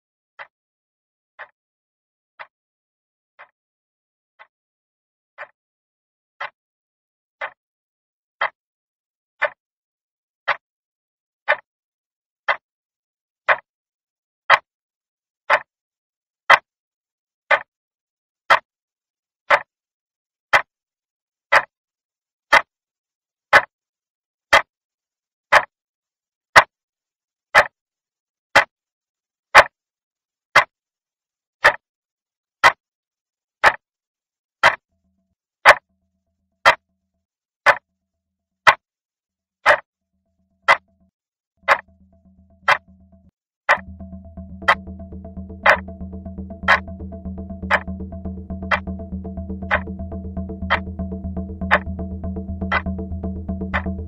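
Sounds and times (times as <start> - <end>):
clock ticking: 41.6 - 54.0.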